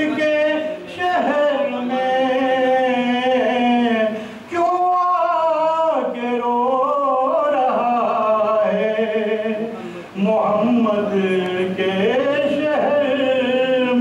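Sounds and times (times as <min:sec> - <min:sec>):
man singing unaccompanied: 0:00.0 - 0:14.0
man breathing: 0:04.2 - 0:04.5.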